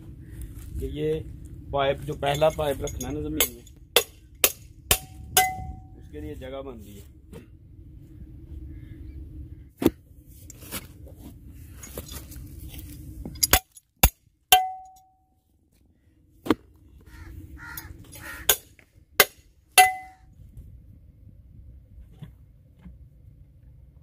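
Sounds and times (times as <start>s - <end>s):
low steady rumble: 0.0s - 24.0s
steel tool clanking on auger: 2.1s - 5.9s, 19.8s - 20.2s.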